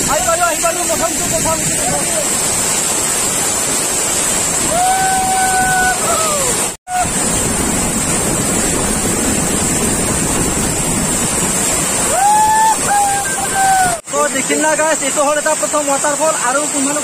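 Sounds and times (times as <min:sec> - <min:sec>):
waterfall roaring: 0:00.0 - 0:17.0
person shouting: 0:04.6 - 0:07.2, 0:12.1 - 0:14.0.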